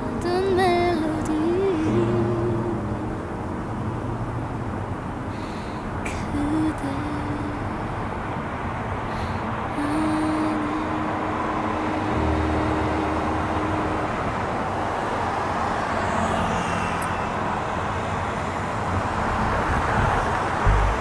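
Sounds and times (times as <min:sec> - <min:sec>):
traffic hum: 0:00.0 - 0:21.0
road and tyre noise: 0:01.5 - 0:21.0
steady low hum: 0:20.1 - 0:21.0.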